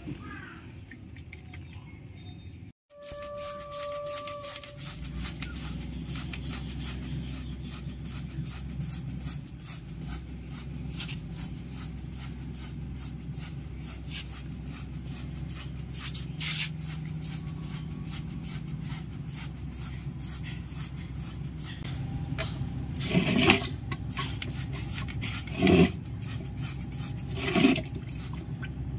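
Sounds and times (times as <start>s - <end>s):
steady low hum: 3.0s - 28.9s.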